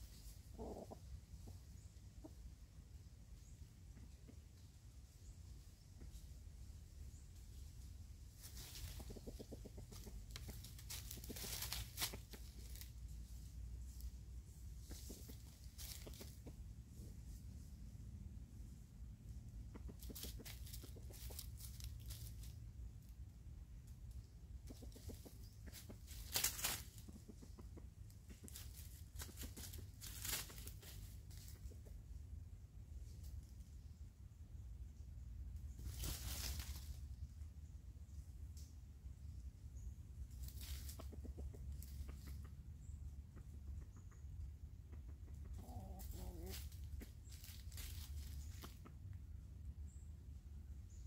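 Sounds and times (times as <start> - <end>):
rooster clucking: 0.1 - 2.7, 8.4 - 17.3, 19.5 - 22.6, 24.0 - 32.4, 40.4 - 49.4
dry leaf litter rustling: 10.0 - 13.0, 15.0 - 16.3, 20.0 - 22.6, 25.8 - 27.1, 28.5 - 31.5, 35.8 - 37.1, 40.4 - 41.0, 45.8 - 48.8
low steady rumble: 12.4 - 19.8.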